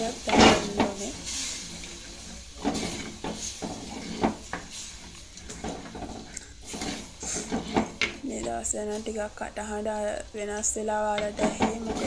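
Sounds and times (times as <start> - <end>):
wooden spoon scraping clay pot: 0.0 - 9.1, 11.1 - 12.0.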